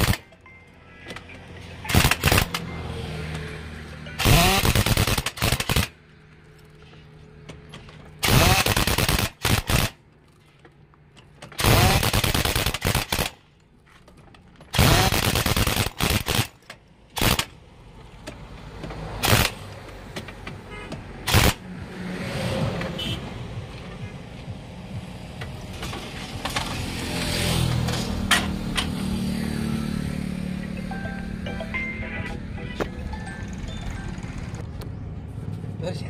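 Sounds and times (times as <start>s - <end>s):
pneumatic impact wrench hammering: 0.0s - 0.2s, 1.9s - 2.6s, 4.2s - 6.0s, 8.2s - 10.0s, 11.3s - 13.4s, 14.7s - 17.5s, 19.2s - 20.3s, 21.2s - 21.6s.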